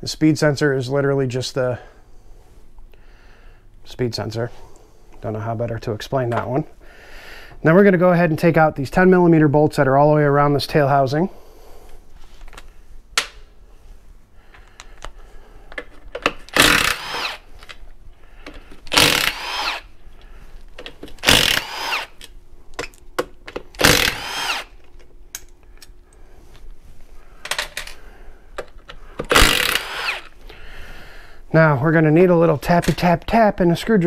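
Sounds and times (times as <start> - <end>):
cordless driver whining: 16.4 - 17.4, 18.7 - 19.9, 21.1 - 22.3, 23.8 - 24.8, 29.2 - 30.4.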